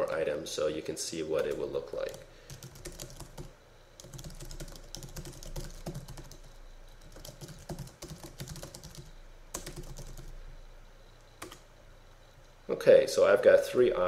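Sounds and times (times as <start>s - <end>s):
typing on computer keyboard: 1.4s - 10.3s, 11.4s - 11.6s.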